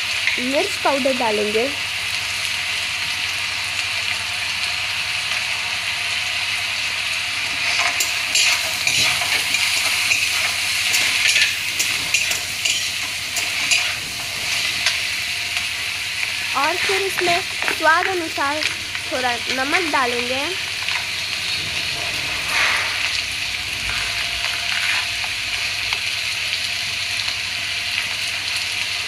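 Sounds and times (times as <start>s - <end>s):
beans sizzling in hot oil: 0.0s - 29.0s
metal spatula scraping pan: 7.6s - 15.0s, 23.9s - 25.1s.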